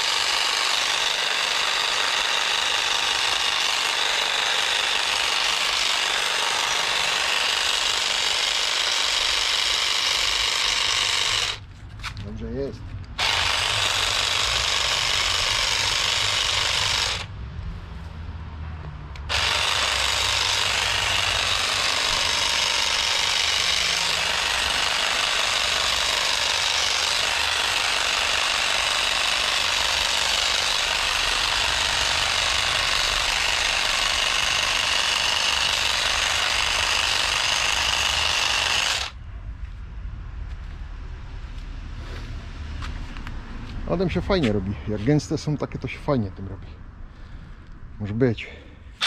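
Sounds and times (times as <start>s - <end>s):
garden trimmer cutting vegetation: 0.0s - 17.3s, 19.2s - 39.2s.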